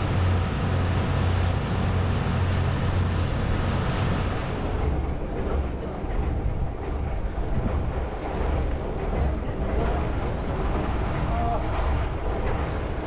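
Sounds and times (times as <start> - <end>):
boat engine running: 0.0 - 13.0.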